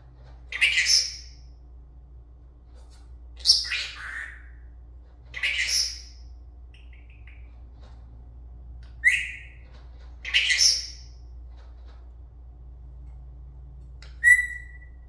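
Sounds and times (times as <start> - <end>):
parrot harsh calls: 0.5 - 1.4, 3.4 - 4.7, 5.3 - 6.2, 9.0 - 9.6, 10.2 - 11.1, 14.2 - 14.9
parrot soft chirps: 0.5 - 1.5, 3.4 - 7.6, 8.9 - 11.2, 14.0 - 15.0.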